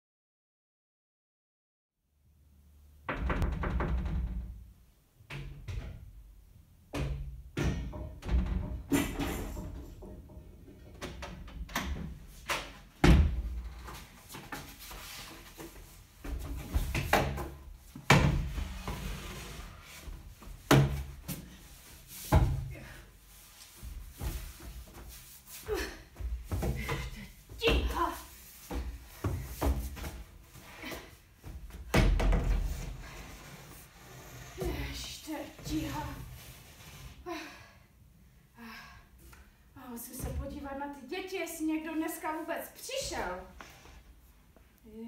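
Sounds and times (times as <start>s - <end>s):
knocks and thuds: 6.9s - 12.2s.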